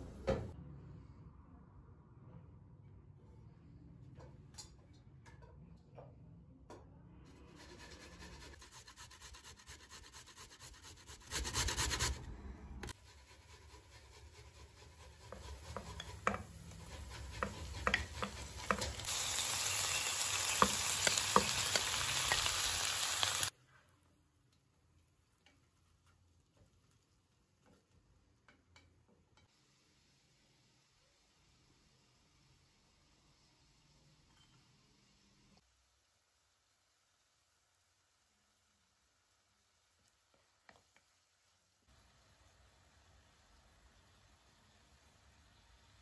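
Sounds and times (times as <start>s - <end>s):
wooden spatula scraping pot: 7.3s - 19.1s
meat sizzling in hot oil: 15.3s - 23.5s.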